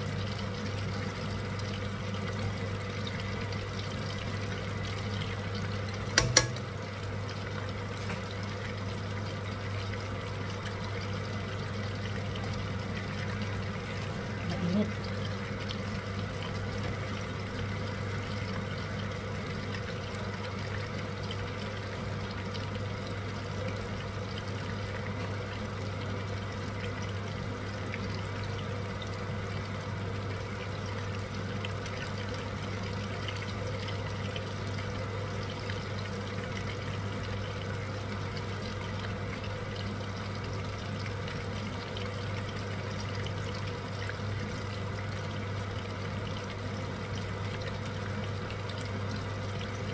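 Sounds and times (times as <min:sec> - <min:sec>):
food deep-frying in hot oil: 0:00.0 - 0:49.9
low steady hum: 0:00.0 - 0:49.9.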